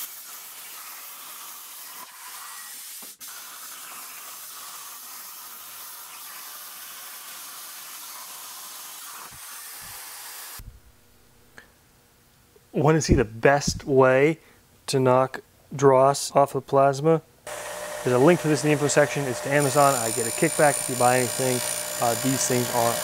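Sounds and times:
plasma torch hissing: 0.0s - 10.6s, 17.5s - 23.0s.

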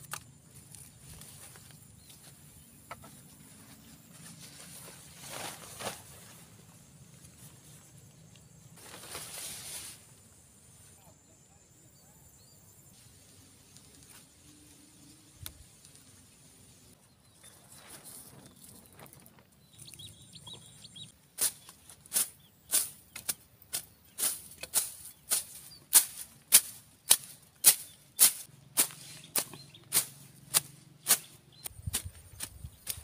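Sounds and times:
machete swishing through grass: 8.8s - 10.0s, 21.4s - 33.0s.

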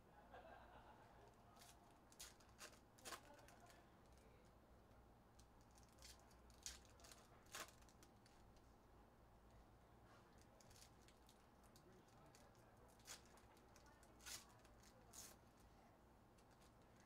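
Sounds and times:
foil wrappers crinkling: 1.6s - 4.2s, 5.6s - 8.4s, 10.5s - 15.6s.

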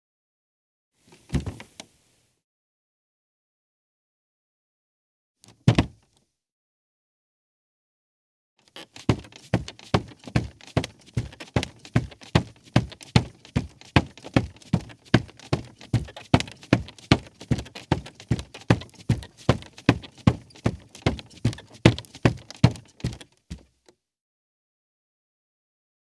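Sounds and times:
bare footsteps on creaky rug: 8.6s - 23.8s.

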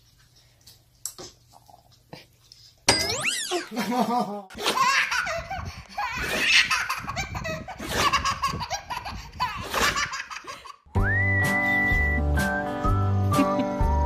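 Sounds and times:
baby laughing: 3.2s - 10.8s
music with whistled note: 11.0s - 14.0s.

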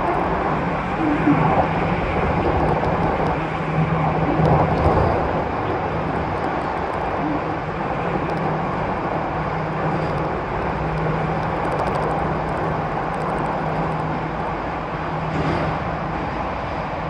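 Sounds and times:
low hum: 0.0s - 15.4s
train wheels rumbling on rail: 0.0s - 17.0s.

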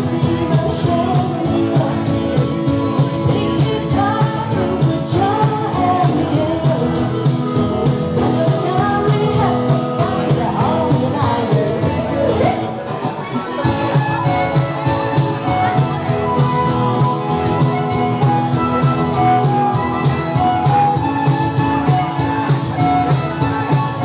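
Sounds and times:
steady drum beat: 0.0s - 12.3s, 13.6s - 24.0s
woman singing: 0.0s - 12.8s
acoustic guitar: 0.0s - 24.0s.

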